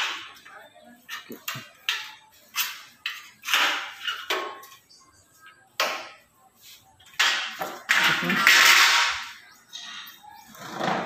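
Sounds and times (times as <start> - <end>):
aluminium frames knocking and scraping: 0.0 - 5.0, 7.0 - 11.0.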